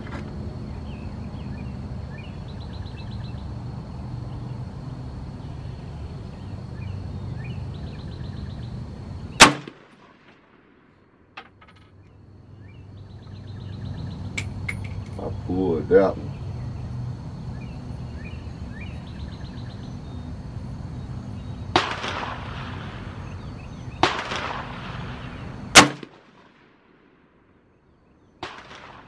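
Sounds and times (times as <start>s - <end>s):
faint chirping: 0.6s - 9.4s, 11.9s - 21.8s, 22.7s - 24.1s
pistol shot: 9.4s - 10.4s, 21.7s - 22.8s, 24.0s - 26.7s, 28.4s - 29.0s.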